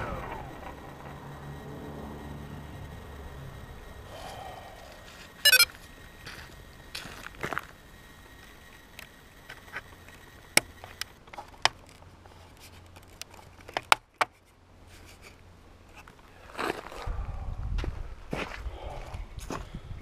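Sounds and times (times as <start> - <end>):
crunching and rustling on gravel: 16.0 - 17.1.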